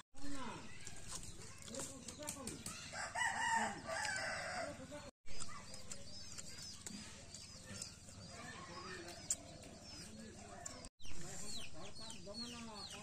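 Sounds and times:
small birds chirping: 0:00.2 - 0:13.0
rooster crowing: 0:02.9 - 0:04.8.

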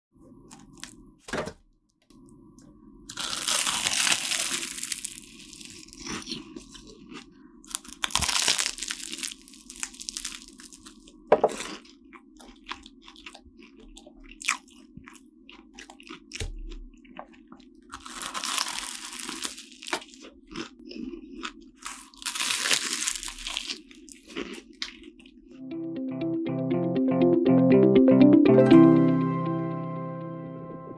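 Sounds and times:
croissant pastry crackling: 0:03.1 - 0:13.4, 0:17.8 - 0:25.3
close chewing: 0:03.1 - 0:25.6.

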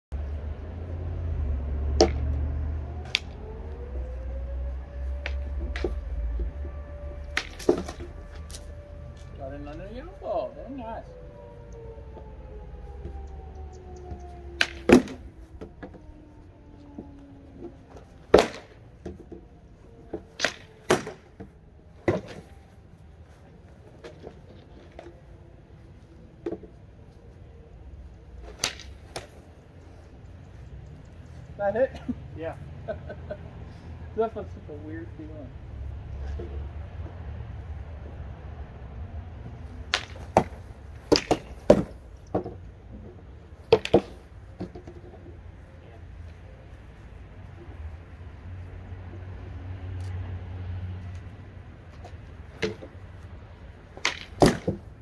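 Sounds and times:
swords clacking on wooden shields: 0:39.9 - 0:42.5, 0:43.7 - 0:44.8, 0:54.0 - 0:54.8.

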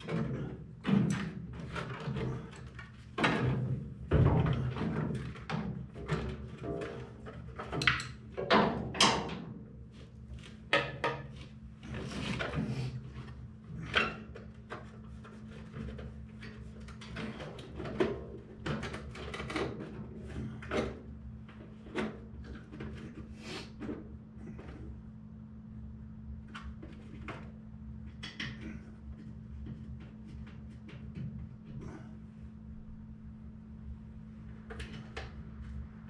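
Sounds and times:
steady low hum: 0:09.4 - 0:36.0.

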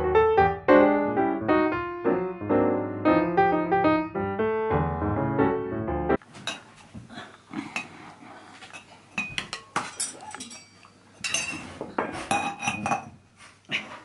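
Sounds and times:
metal spoon clinking on plates: 0:08.7 - 0:13.1.

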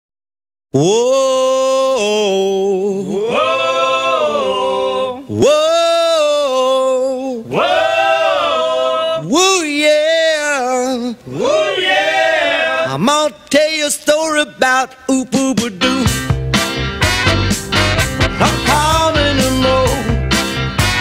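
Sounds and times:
man singing unaccompanied: 0:00.8 - 0:03.2, 0:05.2 - 0:07.5, 0:09.2 - 0:11.3, 0:12.8 - 0:16.3, 0:18.3 - 0:20.4.

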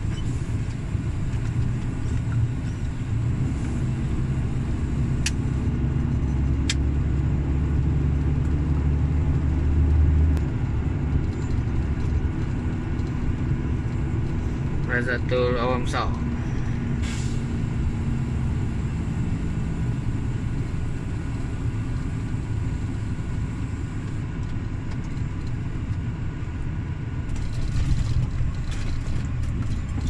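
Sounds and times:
truck diesel engine rumble: 0:00.0 - 0:30.0.

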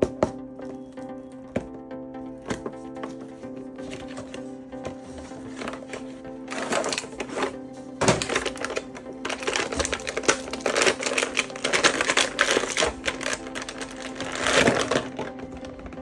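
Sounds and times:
plastic clicks and rattles: 0:05.6 - 0:16.0.

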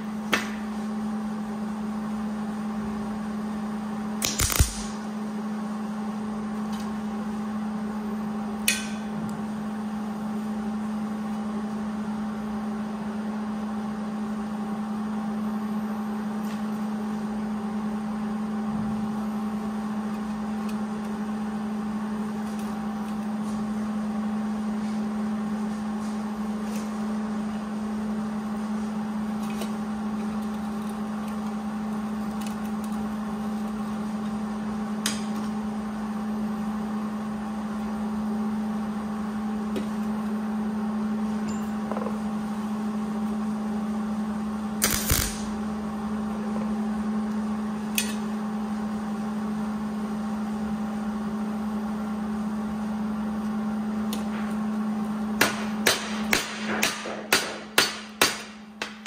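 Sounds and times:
steady hum: 0:00.0 - 0:59.0
welder burst: 0:04.2 - 0:05.0, 0:44.8 - 0:45.7.

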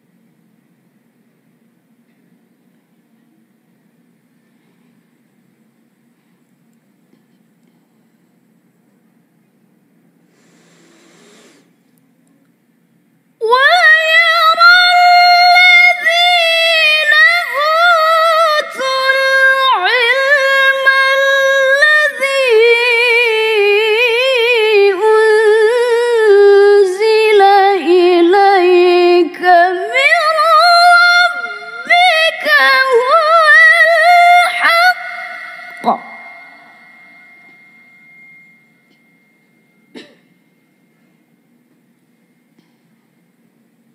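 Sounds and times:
woman reciting melodically: 0:13.4 - 0:37.0.

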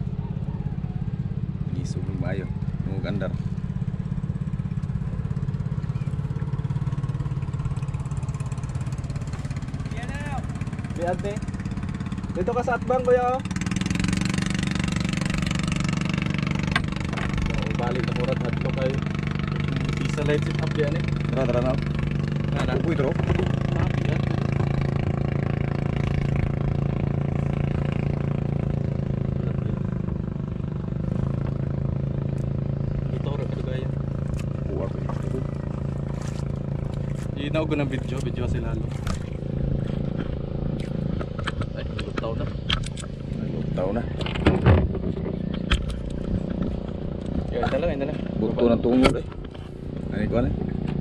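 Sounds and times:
boat engine running: 0:00.0 - 0:51.0.

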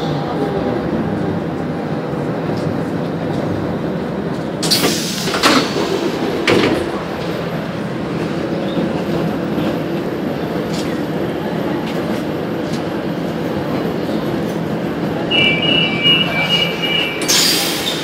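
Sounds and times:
metro train rumble: 0:00.0 - 0:18.0
train doors hissing open: 0:04.6 - 0:07.4, 0:15.2 - 0:18.0.

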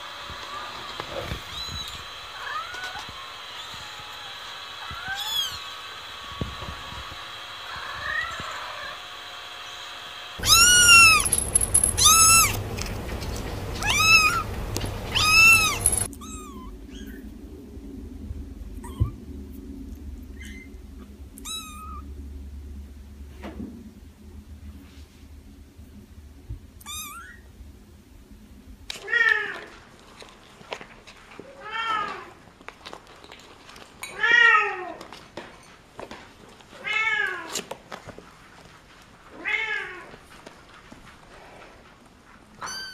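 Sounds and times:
kittens meowing: 0:01.3 - 0:05.6, 0:07.7 - 0:09.0, 0:10.4 - 0:12.6, 0:13.8 - 0:17.2, 0:18.8 - 0:19.2, 0:21.4 - 0:22.0, 0:26.8 - 0:27.4, 0:42.6 - 0:42.9.

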